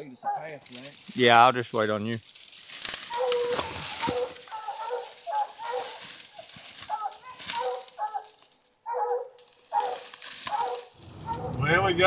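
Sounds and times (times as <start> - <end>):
branches crackling: 0.0 - 11.7
footsteps crashing through dry brush: 0.4 - 11.6
hound whining: 3.0 - 6.0, 6.9 - 11.6.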